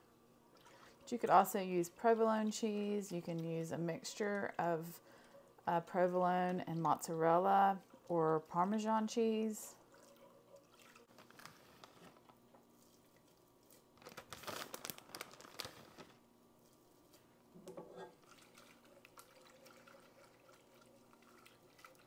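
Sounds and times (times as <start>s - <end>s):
plastic bag crinkling: 11.1s - 12.4s, 13.7s - 16.2s.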